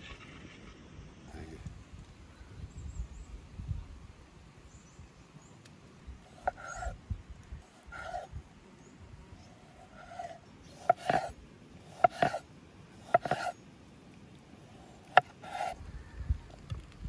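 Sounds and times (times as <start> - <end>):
knife blade scraping: 7.8 - 8.3, 9.8 - 11.3, 11.9 - 12.4, 13.0 - 13.6, 14.8 - 15.8
knife knocking on wooden board: 10.8 - 11.3, 12.0 - 12.4, 13.1 - 13.5.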